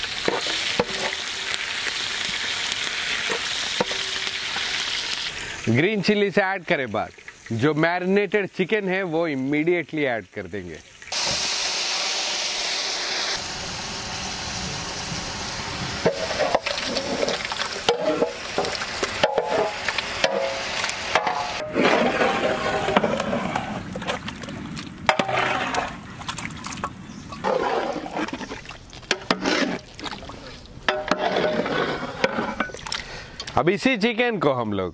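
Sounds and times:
chicken sizzling in hot oil: 0.0s - 7.7s, 10.8s - 23.0s
ladle scraping metal pot: 16.0s - 24.2s, 25.1s - 33.0s.

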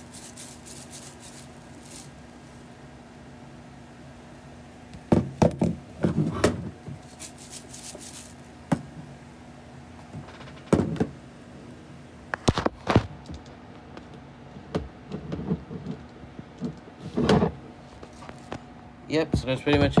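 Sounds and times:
plastic toy rattling when shaken: 0.0s - 2.2s, 7.0s - 8.5s.

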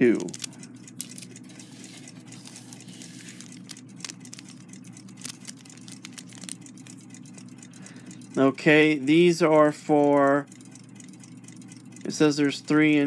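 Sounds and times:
paper packet crinkling: 0.0s - 6.8s
steady low hum: 0.0s - 13.0s.

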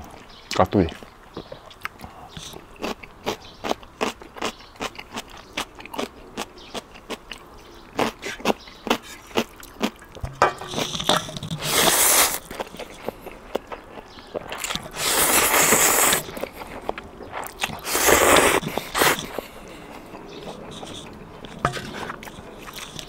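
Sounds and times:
crunchy chewing: 0.0s - 23.0s
hissing rush: 14.9s - 16.3s, 17.8s - 19.4s.

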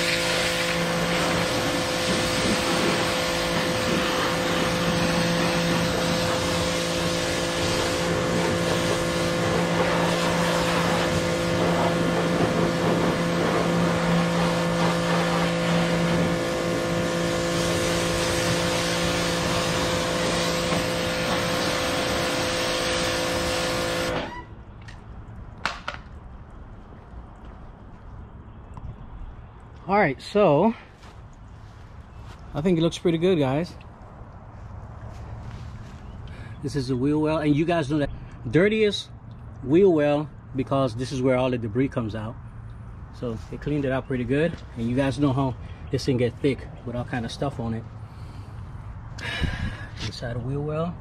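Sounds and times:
water jet hissing: 0.0s - 24.4s
pressure washer motor humming: 0.0s - 24.5s.

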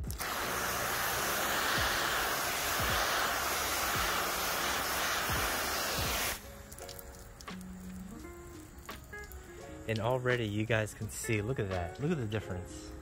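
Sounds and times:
hose spraying water on car: 0.0s - 9.9s.

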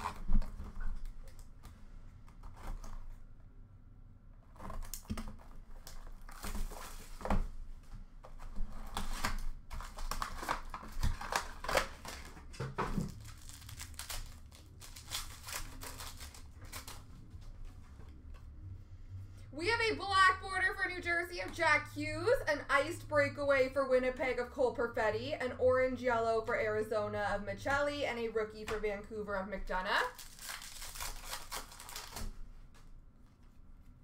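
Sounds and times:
plastic and foil wrapping crinkling: 4.6s - 7.4s, 8.8s - 17.5s, 29.9s - 32.7s
card pack ripping open: 8.8s - 17.1s, 30.1s - 32.4s.

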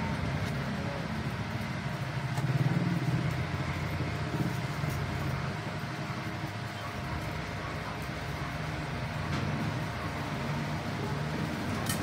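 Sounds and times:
low rumble of vehicle noise: 0.0s - 12.0s.

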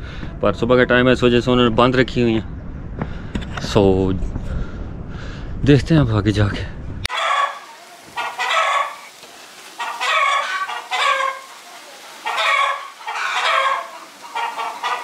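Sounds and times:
chickens clucking and cackling: 7.1s - 15.0s.

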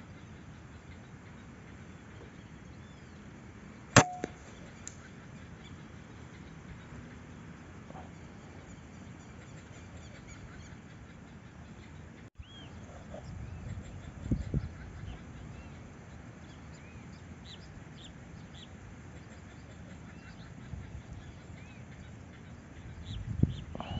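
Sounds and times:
rifle shot: 4.0s - 4.4s.

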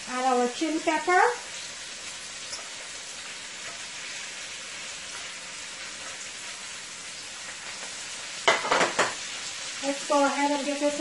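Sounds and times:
vegetables sizzling in hot oil: 0.0s - 11.0s
wooden spoon knocking in pot: 8.5s - 9.2s.

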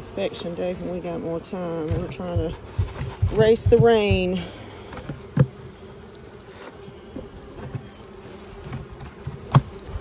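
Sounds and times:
honeybees buzzing: 0.0s - 10.0s
hive tool knocks: 1.9s - 4.3s, 8.7s - 9.8s.

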